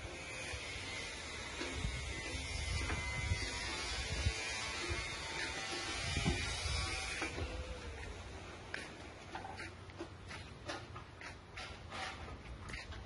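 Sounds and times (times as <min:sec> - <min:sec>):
small electric motor buzzing: 0:00.0 - 0:08.2.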